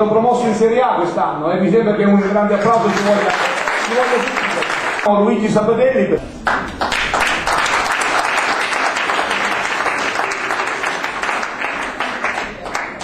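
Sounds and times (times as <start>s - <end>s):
audience applauding: 2.2s - 5.1s, 6.4s - 13.0s.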